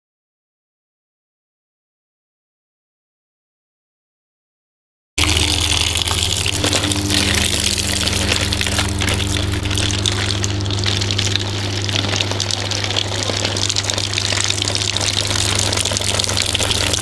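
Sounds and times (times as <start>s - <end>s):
low motor hum: 5.2s - 17.0s
water gushing from drain: 5.2s - 17.0s.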